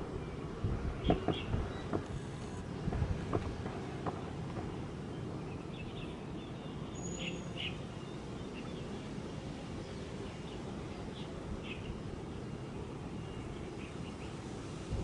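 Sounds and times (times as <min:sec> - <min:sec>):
low outdoor rumble: 0:00.0 - 0:15.0
bird chirps: 0:05.6 - 0:08.8.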